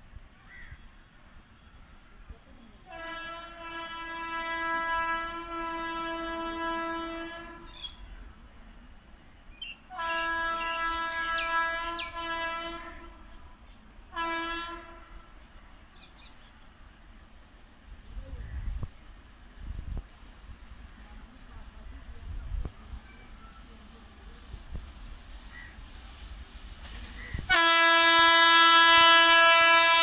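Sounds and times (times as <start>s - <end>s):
locomotive horn blasts: 2.9s - 7.7s, 9.9s - 13.2s, 14.1s - 15.4s, 27.5s - 30.0s.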